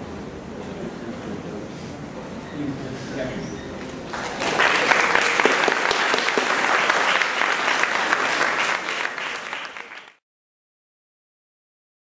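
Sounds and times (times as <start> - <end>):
audience applauding: 4.1 - 10.2.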